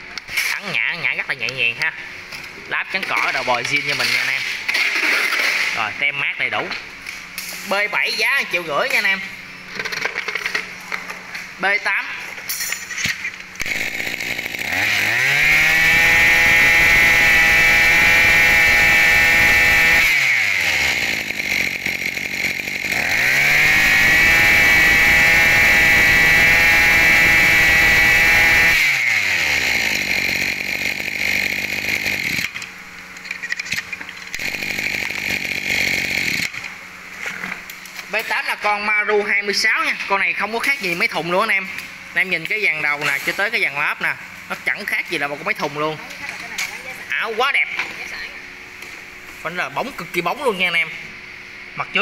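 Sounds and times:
brush cutter engine idling and revving: 0:13.6 - 0:32.8, 0:34.3 - 0:36.7.

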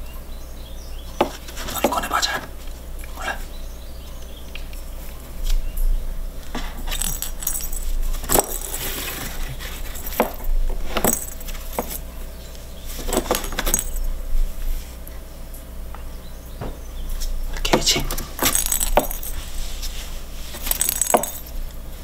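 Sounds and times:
ball knocking and rattling in toy: 0:06.5 - 0:12.0, 0:13.0 - 0:14.1, 0:17.7 - 0:19.5, 0:20.6 - 0:21.6.

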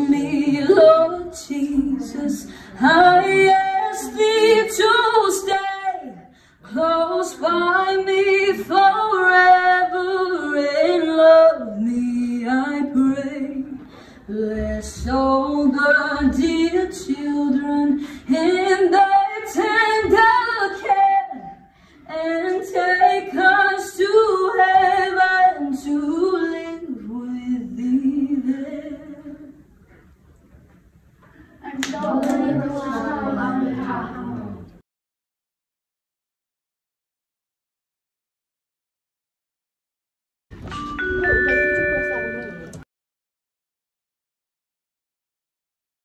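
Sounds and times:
woman singing unaccompanied: 0:00.0 - 0:29.6.

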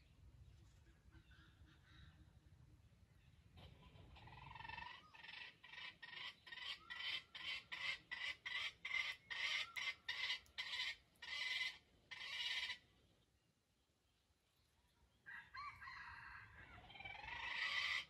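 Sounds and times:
junglefowl short calls: 0:03.7 - 0:12.8.

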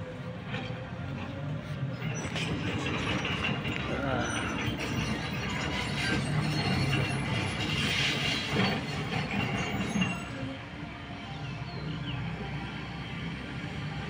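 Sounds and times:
clatter of excavator tracks: 0:00.0 - 0:10.8
tracked excavator running: 0:00.0 - 0:14.0.

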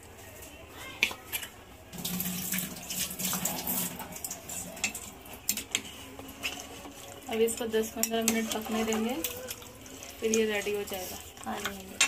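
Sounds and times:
water running in a stream: 0:02.0 - 0:04.9.

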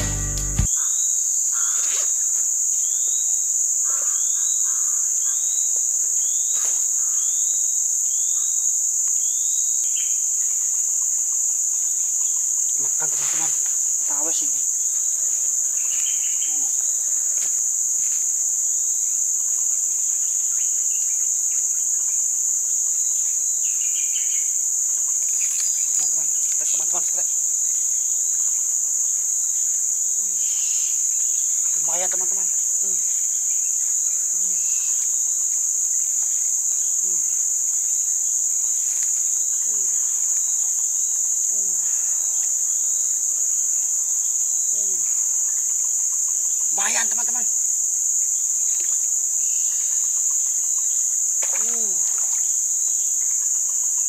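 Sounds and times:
low call falling in pitch: 0:00.0 - 0:00.7
insect chorus drone: 0:00.0 - 0:54.0.

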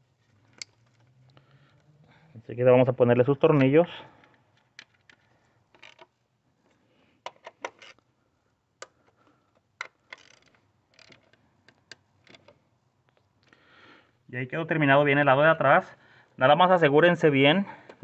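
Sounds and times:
hand ratchet clicking: 0:09.8 - 0:11.4.

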